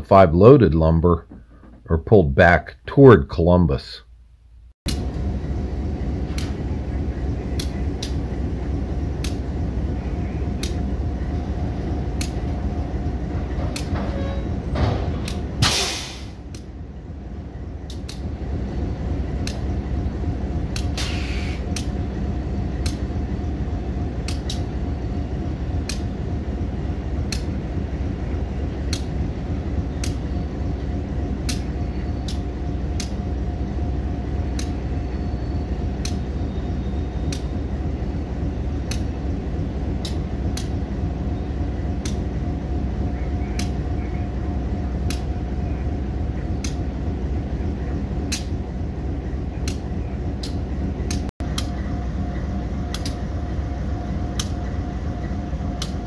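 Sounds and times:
diesel locomotive idling: 4.9 - 56.0
air hiss: 15.6 - 16.4, 20.9 - 21.7.

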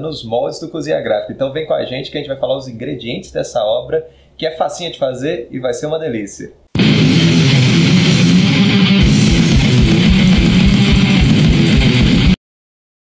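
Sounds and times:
loud guitar music: 6.8 - 12.4
steady low beat: 6.8 - 12.4.

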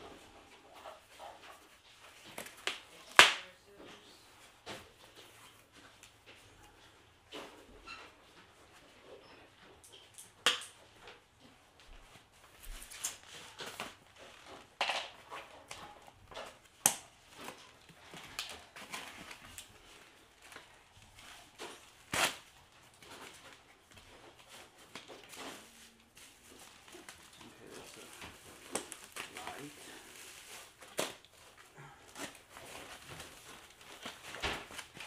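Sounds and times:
sharp snaps and clicks: 9.9 - 10.8
plastic packaging crinkling: 15.9 - 35.0.

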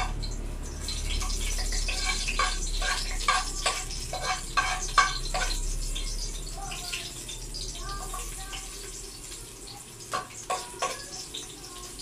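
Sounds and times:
food sizzling in hot oil: 0.0 - 12.0
scraping off a plate: 1.8 - 5.6.

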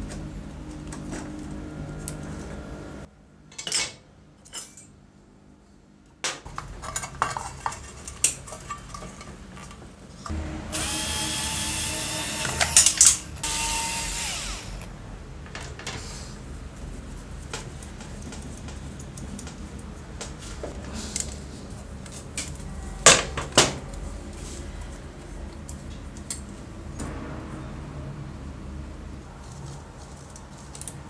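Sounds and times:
small electric power tool running: 10.7 - 14.9.

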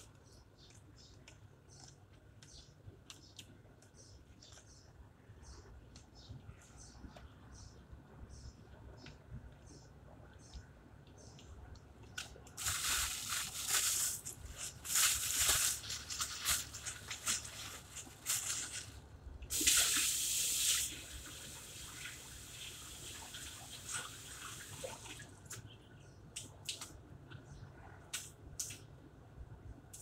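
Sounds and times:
water splashes and drips: 19.5 - 25.7, 26.4 - 27.0.

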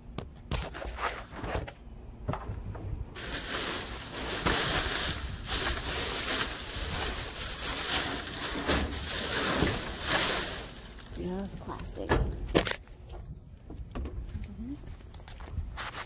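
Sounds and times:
plastic trash bags rustling: 3.2 - 12.8.

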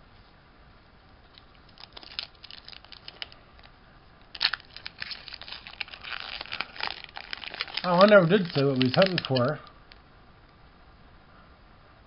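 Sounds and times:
foil wrapper crinkling and tearing: 1.3 - 3.7, 4.3 - 9.7.

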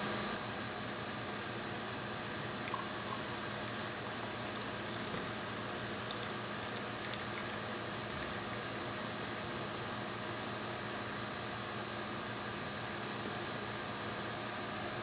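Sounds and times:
background hiss and hum: 0.0 - 15.0
coffee trickling into a mug: 2.6 - 9.5.

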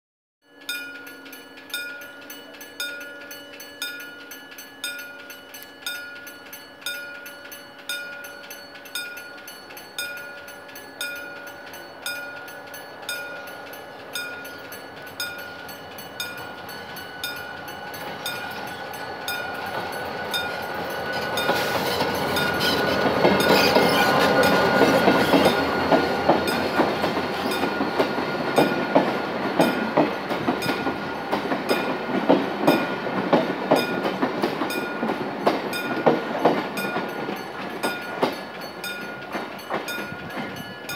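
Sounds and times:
ringing ding: 0.4 - 19.6
diesel locomotive passing: 0.5 - 40.9
train cars clacking: 0.6 - 40.9.

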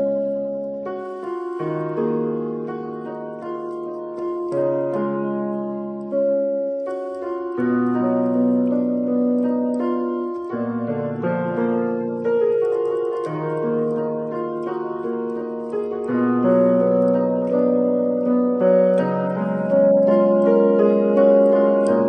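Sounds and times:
slow piano chords: 0.0 - 22.0.

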